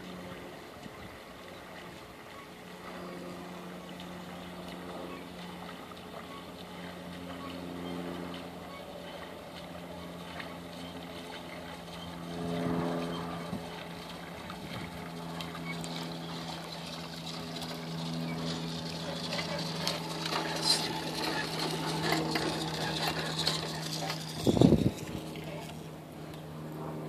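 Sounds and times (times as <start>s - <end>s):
water swishing: 0.0s - 26.1s
moped engine running: 9.8s - 25.9s.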